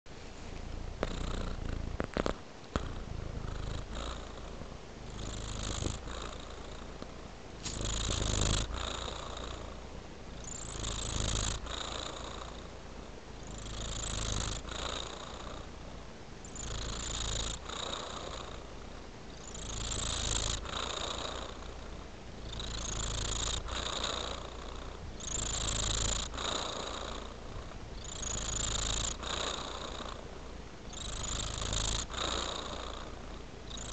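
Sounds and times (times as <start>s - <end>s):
cat purring: 0.2s - 33.9s.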